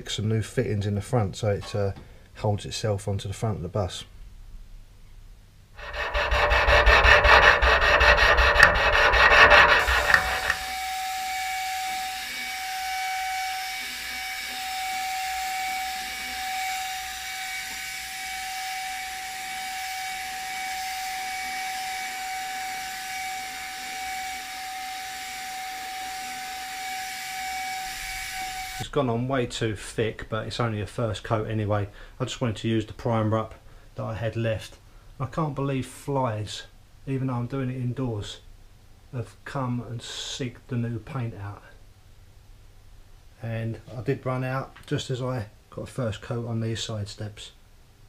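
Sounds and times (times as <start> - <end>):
hand sanding metal panel: 5.8 - 10.8
electric paint spray gun: 5.8 - 11.2, 20.2 - 28.8.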